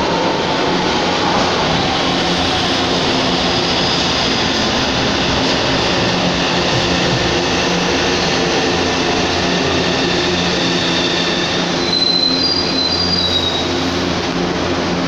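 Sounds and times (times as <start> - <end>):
train wheels rumbling on rail: 0.0 - 15.0
high wheel squeal: 9.9 - 13.8.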